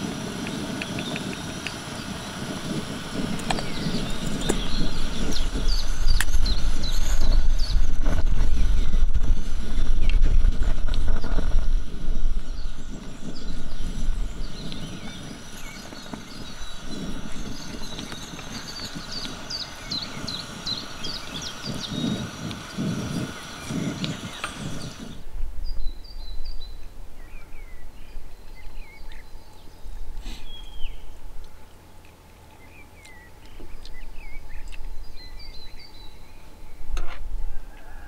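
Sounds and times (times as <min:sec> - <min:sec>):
small birds chirping: 0:00.0 - 0:37.0
sharp clicks: 0:00.3 - 0:02.2.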